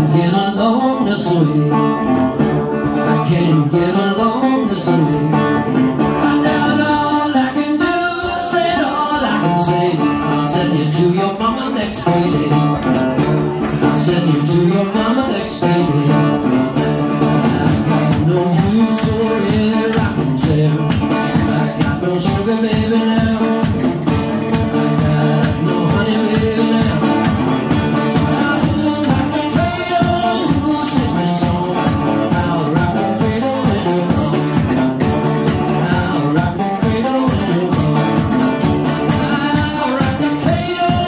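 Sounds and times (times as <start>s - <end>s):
resonator guitar: 0.0s - 41.0s
bass drum beat: 15.5s - 41.0s.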